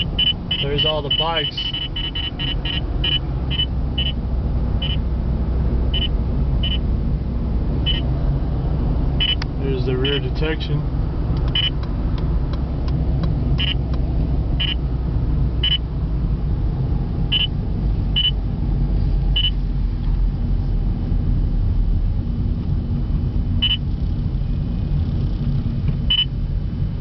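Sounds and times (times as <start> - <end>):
short high beeps: 0.0 - 4.2, 6.0 - 6.8, 7.9 - 8.1, 9.2 - 9.4, 11.6 - 11.8, 13.6 - 13.8, 14.6 - 14.8
car engine and tyres rumble: 0.0 - 27.0.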